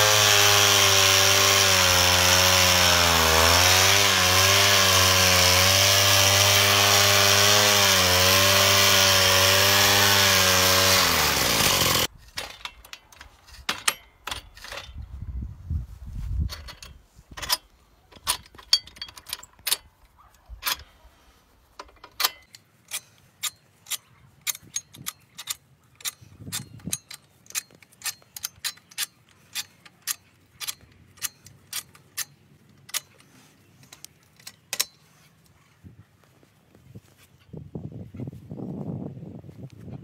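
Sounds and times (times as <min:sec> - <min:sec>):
metallic clicks and ticks: 0:16.5 - 0:21.0, 0:21.8 - 0:35.0.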